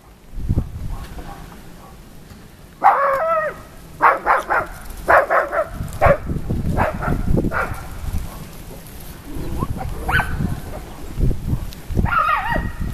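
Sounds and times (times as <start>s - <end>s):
puppies barking: 0.0s - 2.1s, 2.8s - 12.9s
puppies yelping: 2.8s - 8.6s, 9.2s - 12.9s.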